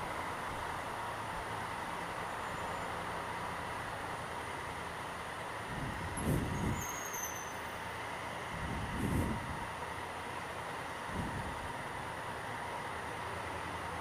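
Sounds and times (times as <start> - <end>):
traffic echoing in tunnel: 0.0 - 14.0
motorcycle engine at low speed: 3.6 - 14.0.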